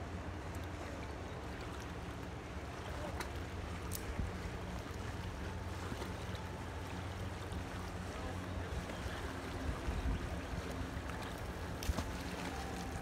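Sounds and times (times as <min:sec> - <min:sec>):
waves lapping against concrete wall: 0:00.0 - 0:13.0.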